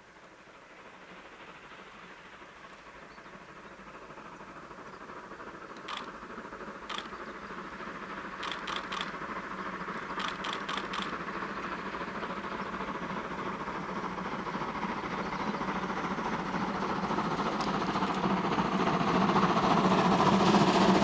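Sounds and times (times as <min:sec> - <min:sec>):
steam train running: 0:00.0 - 0:21.0
sharp clicks: 0:05.7 - 0:06.2, 0:06.9 - 0:07.2, 0:08.4 - 0:09.2, 0:10.2 - 0:11.2.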